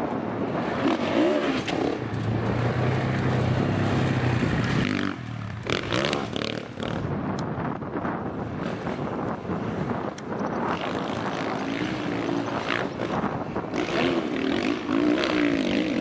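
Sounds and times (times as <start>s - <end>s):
motorcycle engine revving hard: 0.7s - 7.1s, 10.7s - 16.0s.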